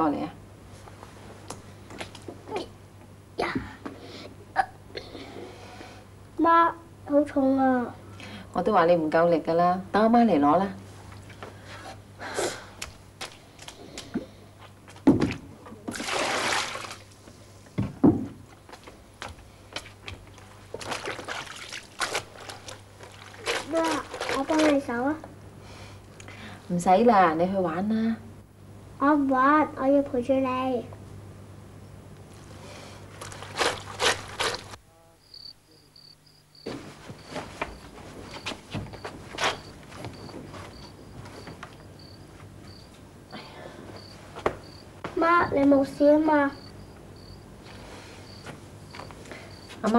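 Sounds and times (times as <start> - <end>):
water pouring into tub: 15.9 - 17.1, 20.8 - 24.8
wet clothes scrubbed by hand: 19.8 - 25.0, 33.1 - 34.8
crickets chirping: 33.2 - 49.9
soft rustles and knocks: 36.6 - 41.8.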